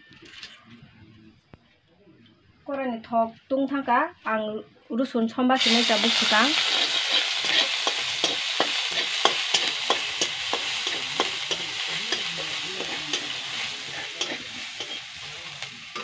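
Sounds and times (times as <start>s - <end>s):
garlic sizzling in oil: 5.6s - 16.0s
spatula scraping pan: 6.1s - 16.0s.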